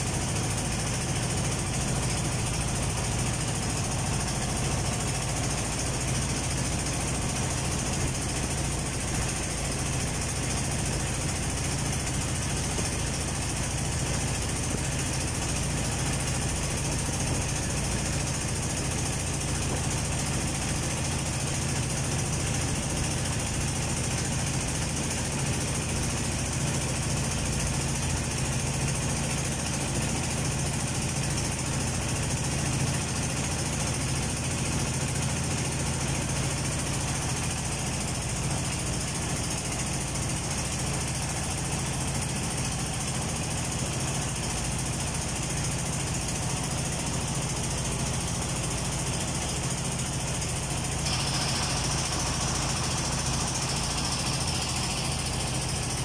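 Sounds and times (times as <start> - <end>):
boat engine droning: 0.0 - 25.4.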